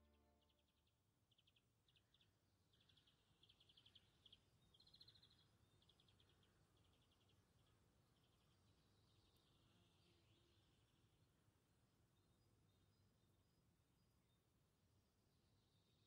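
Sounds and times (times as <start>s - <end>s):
faint high-pitched chirping: 0.0s - 11.0s.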